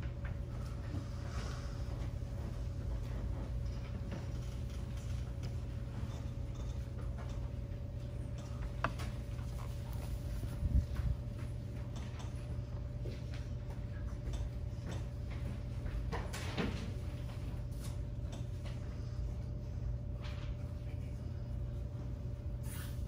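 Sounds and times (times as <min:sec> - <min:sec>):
hall hum and low rumble: 0:00.0 - 0:23.0
faint knocks and shuffles: 0:00.1 - 0:21.9.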